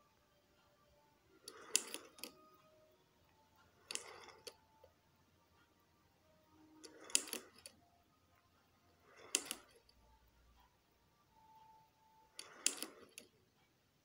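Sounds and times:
toy clicking clatter: 1.4 - 2.5, 3.8 - 4.6, 6.8 - 7.8, 9.0 - 9.8, 12.3 - 13.3.

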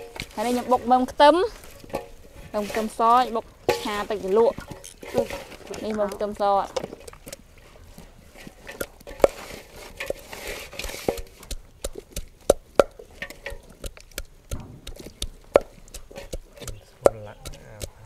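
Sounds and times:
kitchen utensils knocking and clicking: 8.4 - 18.0.

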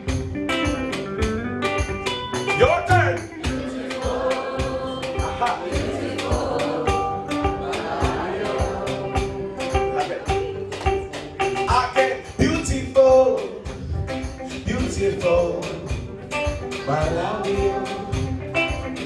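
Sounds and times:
guitars strumming: 0.0 - 19.0
group singing in chorus: 3.4 - 11.0, 14.5 - 19.0.

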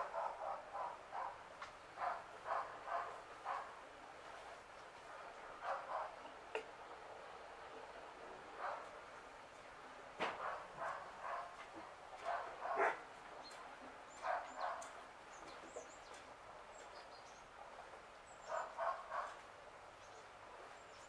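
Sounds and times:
dog barking: 0.0 - 1.4, 2.0 - 3.8, 5.6 - 6.2, 10.4 - 11.6, 12.2 - 13.0, 14.2 - 15.0, 18.5 - 19.4
small birds chirping faintly: 0.0 - 21.0.

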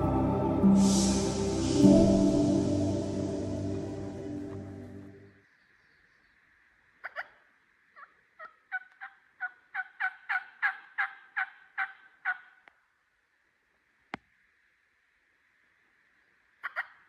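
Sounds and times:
turkey yelping: 7.0 - 7.4, 8.0 - 12.6, 16.6 - 17.0.

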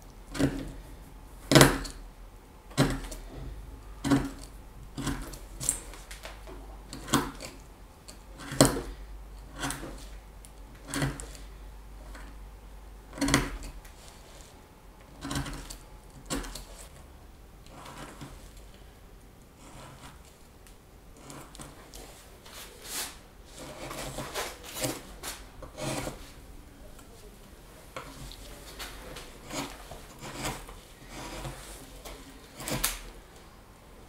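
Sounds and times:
carving tool cutting wood: 0.3 - 0.8, 1.5 - 2.0, 2.8 - 3.2, 4.0 - 5.8, 6.9 - 10.0, 10.8 - 11.5, 13.1 - 13.8, 15.1 - 16.8, 17.7 - 18.4, 19.6 - 20.3, 21.2 - 21.8, 23.5 - 25.0, 25.6 - 26.2, 29.2 - 31.8, 32.4 - 33.1.

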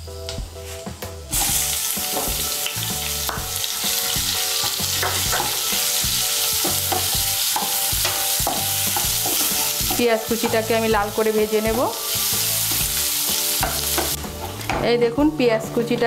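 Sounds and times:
onions sizzling in hot oil: 1.3 - 14.8
spatula scraping a pan: 4.6 - 10.7.

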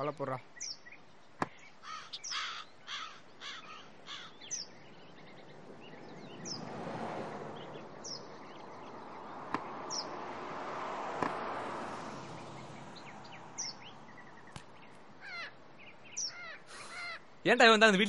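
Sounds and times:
high bird chirps: 0.0 - 6.7, 7.6 - 10.2, 12.3 - 17.3
outdoor ambience: 0.0 - 18.0
crow cawing: 1.8 - 4.6, 15.2 - 15.6, 16.2 - 17.3
cricket bat hitting ball: 9.5 - 9.7, 11.2 - 11.5.

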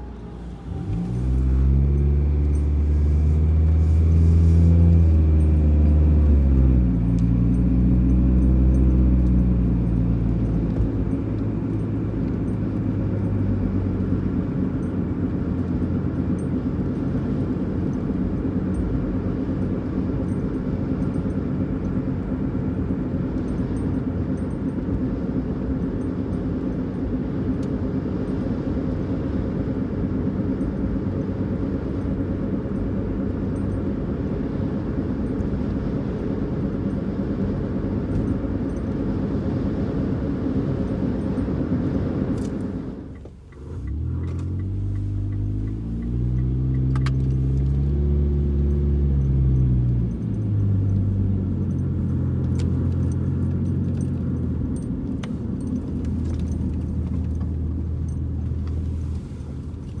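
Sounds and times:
car engine hum: 0.0 - 60.0
road and tyre noise: 0.0 - 60.0
light clicks and rattles: 48.6 - 60.0.

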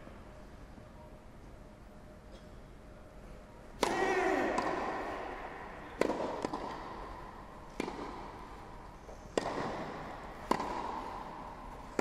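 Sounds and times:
tennis balls struck by racquets: 3.8 - 12.0.

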